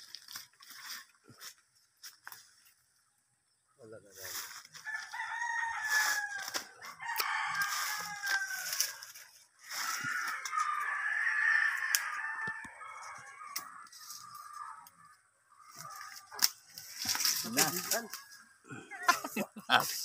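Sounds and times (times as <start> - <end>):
rooster crowing: 4.8 - 16.3.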